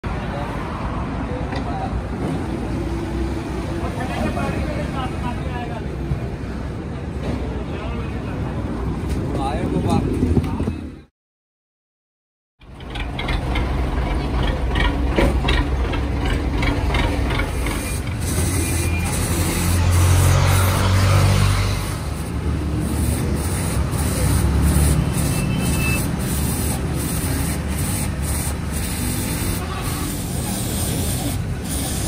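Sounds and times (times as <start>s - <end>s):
machinery rumbling: 12.6s - 20.0s.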